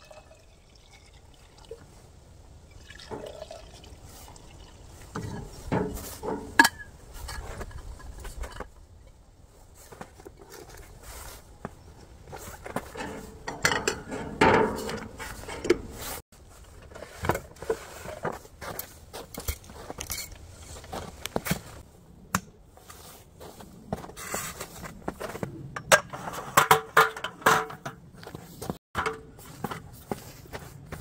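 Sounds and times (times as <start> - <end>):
folding camp table clattering: 5.2 - 8.8, 12.2 - 21.8, 24.0 - 30.4.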